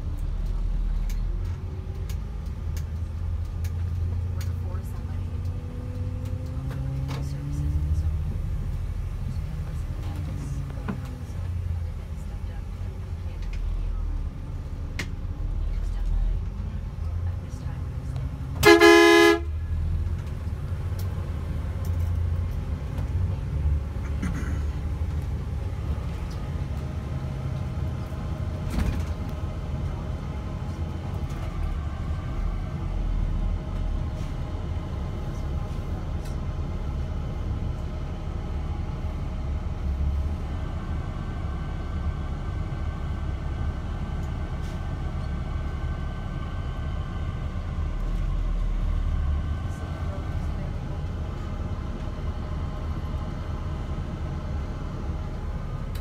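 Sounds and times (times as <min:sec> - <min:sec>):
bus engine and tyres rumbling: 0:00.0 - 0:56.0
vehicle horn blast: 0:18.6 - 0:19.5.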